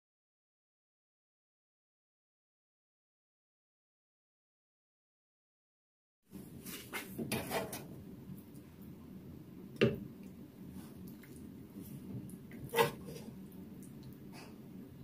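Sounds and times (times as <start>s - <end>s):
steady low hum: 6.3s - 15.0s.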